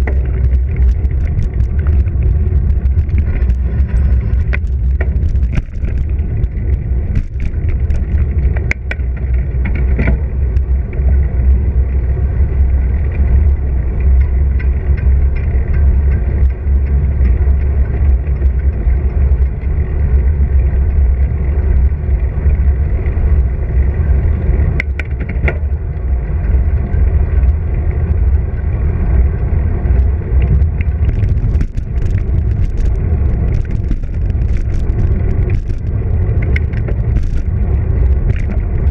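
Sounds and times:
sharp knocks and rattles: 0.0 - 10.7, 29.9 - 38.9
tyre noise on asphalt: 0.0 - 38.9
wind rumble on microphone: 0.0 - 38.9.

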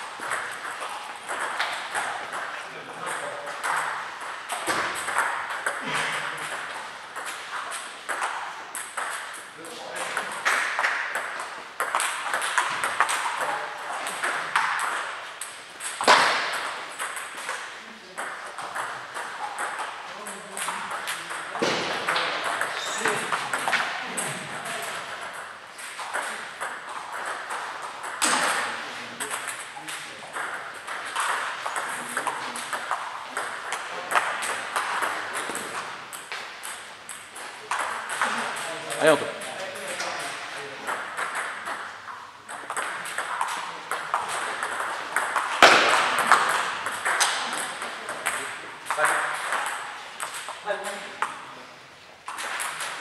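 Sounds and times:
table tennis balls clicking: 0.0 - 51.5, 52.2 - 53.0
voices: 1.9 - 5.0, 17.8 - 25.4.

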